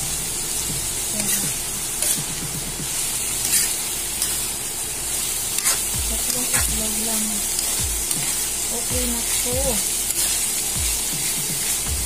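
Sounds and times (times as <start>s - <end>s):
vegetables sizzling in hot oil: 0.0s - 12.0s
metal spatula scraping pan: 1.2s - 2.2s, 3.4s - 4.4s, 5.6s - 6.6s.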